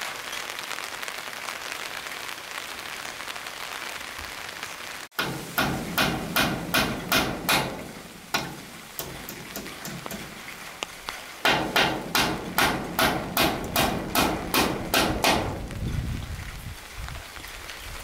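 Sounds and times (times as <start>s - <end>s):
hammer driving nails into wood: 5.2s - 10.3s, 11.4s - 15.6s.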